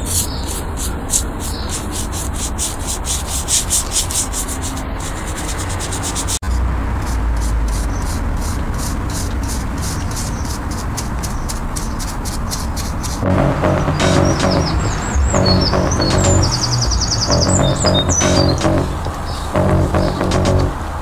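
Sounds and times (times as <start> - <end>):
sandpaper rubbing on wood: 0.0 - 13.2.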